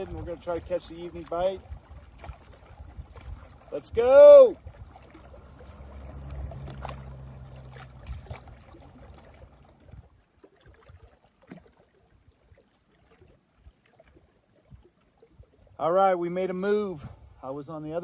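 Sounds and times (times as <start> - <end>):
water lapping at shore: 0.0 - 18.0
low outdoor rumble: 4.5 - 10.0.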